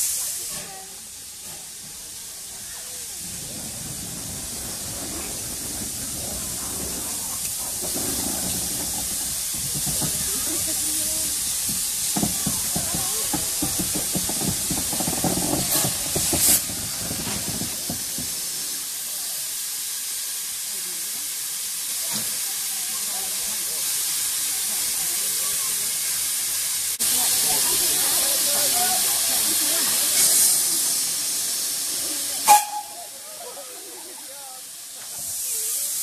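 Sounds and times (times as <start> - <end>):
sharp burst of steam: 0.0 - 36.0
steam hiss: 0.0 - 36.0
locomotive wheels knocking and clanking: 1.4 - 18.6.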